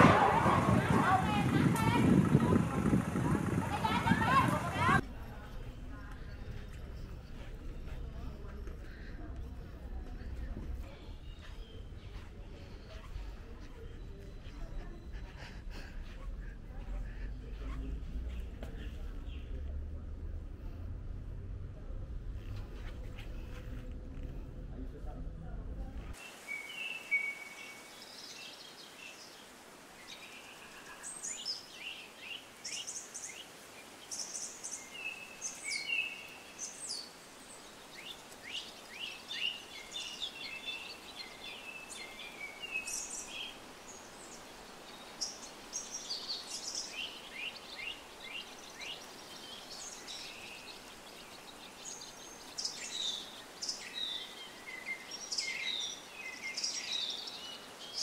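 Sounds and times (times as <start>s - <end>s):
small birds chirping: 0.0s - 21.4s, 26.1s - 58.0s
faint background hiss: 15.6s - 58.0s.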